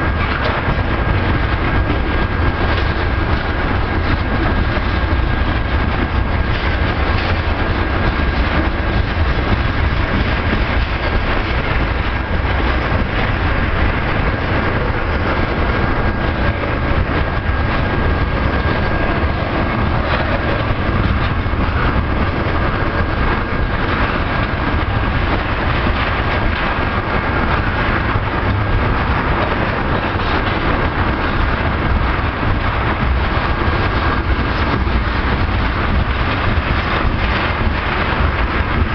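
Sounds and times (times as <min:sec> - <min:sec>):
train wheels rumbling on rail: 0:00.0 - 0:38.9.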